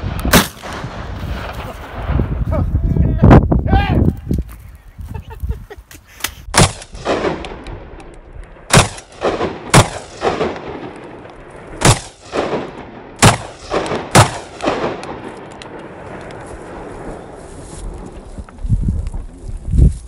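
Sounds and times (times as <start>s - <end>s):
gunshot echoes off hillsides: 0.0s - 2.4s, 6.4s - 17.3s
loud gunshots: 0.3s - 1.8s, 6.5s - 7.6s, 8.7s - 11.0s, 11.7s - 15.2s.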